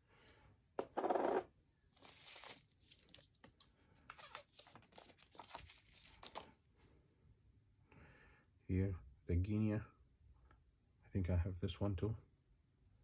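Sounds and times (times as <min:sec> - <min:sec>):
plastic packaging crinkling: 0:02.0 - 0:06.5.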